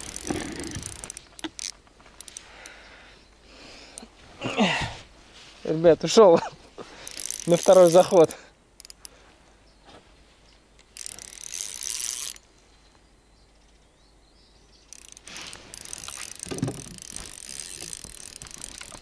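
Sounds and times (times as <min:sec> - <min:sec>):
fishing reel drag clicking: 0:00.0 - 0:02.8, 0:07.0 - 0:09.2, 0:10.8 - 0:12.4, 0:14.9 - 0:19.0.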